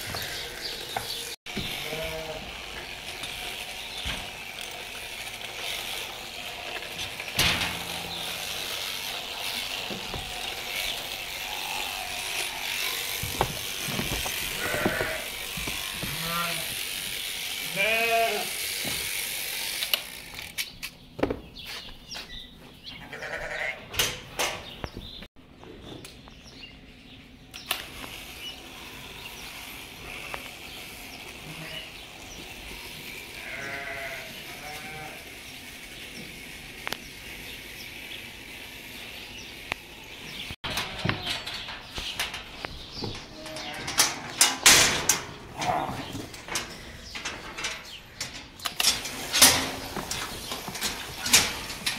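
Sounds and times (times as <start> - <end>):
sheep bleating: 1.7 - 2.7, 11.3 - 12.7, 14.4 - 16.9, 17.5 - 18.6, 23.0 - 23.8, 31.3 - 32.0, 32.8 - 35.4.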